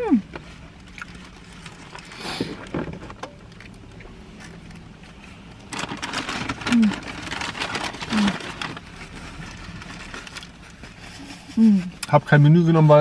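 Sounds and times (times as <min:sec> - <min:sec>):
low hum in car cabin: 0:00.0 - 0:13.0
soft chewing: 0:00.4 - 0:02.2
paper wrapping rustling: 0:05.2 - 0:11.3.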